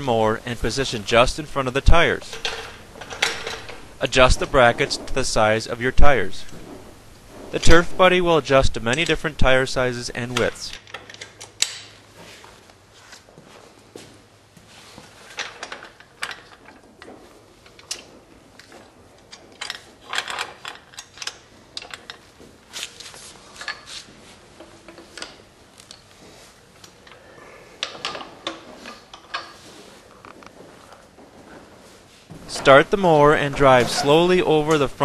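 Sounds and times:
metal clicks clanks and rattles: 2.2 - 5.3, 10.3 - 12.0, 15.3 - 22.3, 27.8 - 29.6.

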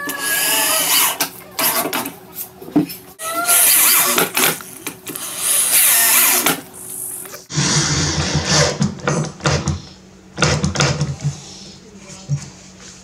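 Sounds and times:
electric drill driving screws: 3.4 - 6.6.

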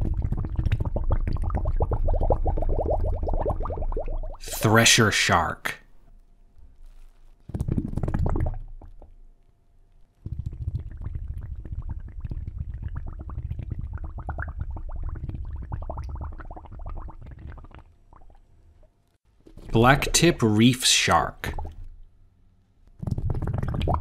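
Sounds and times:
water bubbling and gurgling: 0.0 - 4.7, 7.5 - 9.2, 10.3 - 18.5, 19.6 - 22.0, 23.0 - 24.0.

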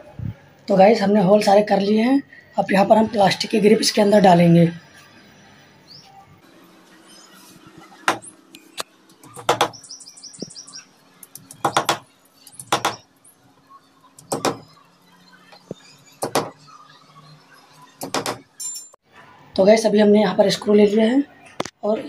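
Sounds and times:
bird chirping: 3.8 - 18.0.

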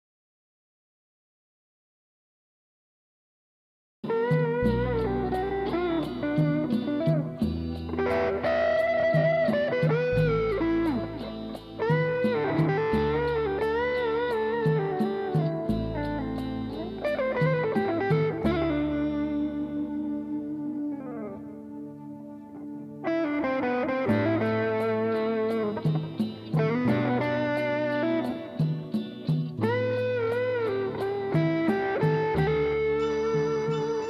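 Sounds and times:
ticking beat: 4.1 - 20.3, 23.1 - 34.0
electric guitar lead: 4.1 - 34.0
sustained bass line: 4.6 - 20.7.

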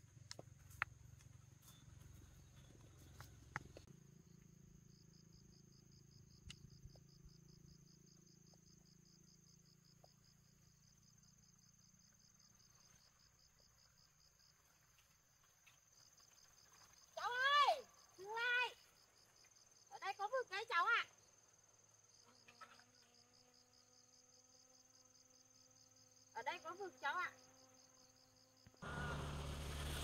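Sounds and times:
insects buzzing: 0.0 - 30.0
insect pulsed chirping: 1.1 - 14.5.

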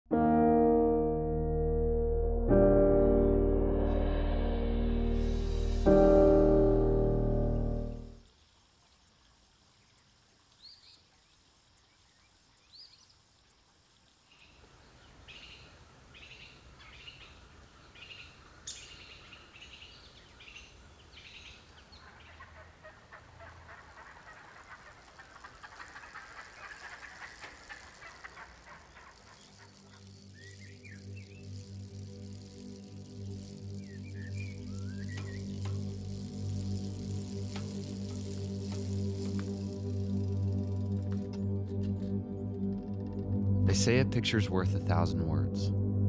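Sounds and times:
faint birds chirping: 5.2 - 44.0
bird chirring: 14.0 - 40.7.

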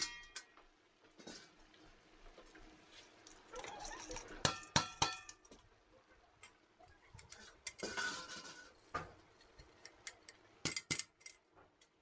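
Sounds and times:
metal dish scraping metal pot: 7.4 - 8.8.

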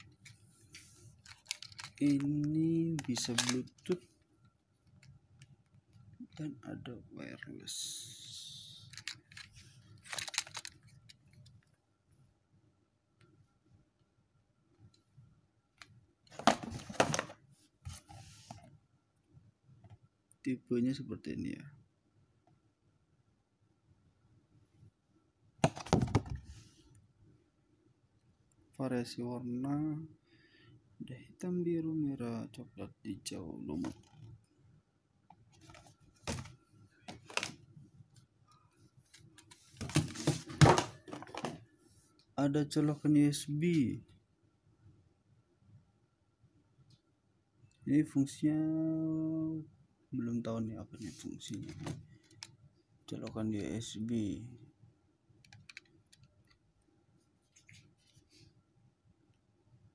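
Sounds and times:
headphones clicking and knocking: 1.2 - 3.9, 10.1 - 11.2, 25.6 - 26.5.

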